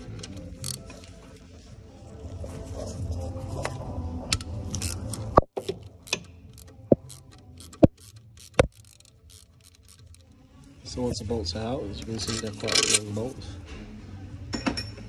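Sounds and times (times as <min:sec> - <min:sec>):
ratchet clicking: 0:00.2 - 0:00.9, 0:04.4 - 0:10.3.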